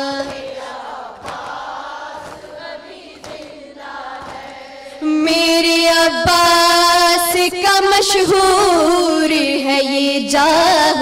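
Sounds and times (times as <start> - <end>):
group chanting call-and-response: 0.0 - 7.3.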